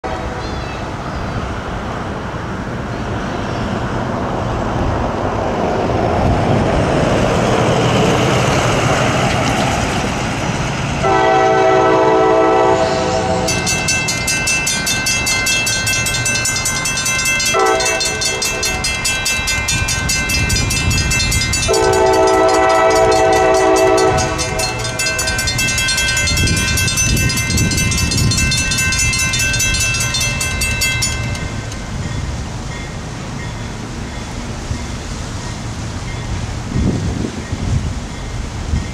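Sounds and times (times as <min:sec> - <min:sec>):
train horn blasts: 0:00.0 - 0:00.6, 0:11.0 - 0:13.6, 0:17.5 - 0:18.9, 0:21.6 - 0:25.6
train rumble: 0:00.0 - 0:38.9
high rapidly pulsing ringing: 0:13.4 - 0:31.8.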